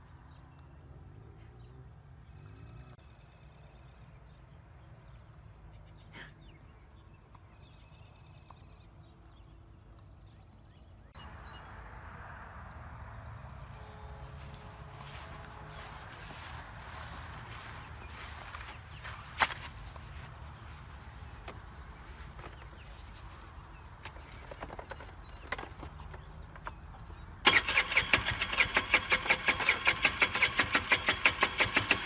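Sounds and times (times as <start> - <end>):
low outdoor rumble: 9.0 - 27.2.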